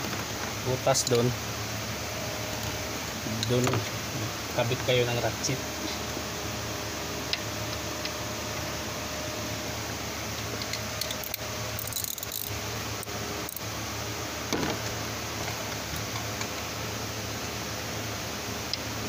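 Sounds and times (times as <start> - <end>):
steady background hum: 0.0 - 19.0
ratchet clicking and clinking: 10.6 - 12.6.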